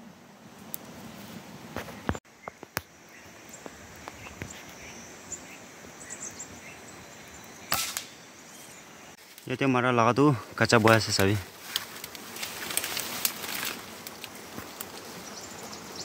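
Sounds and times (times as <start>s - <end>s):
air rifle shot: 7.7s - 8.2s.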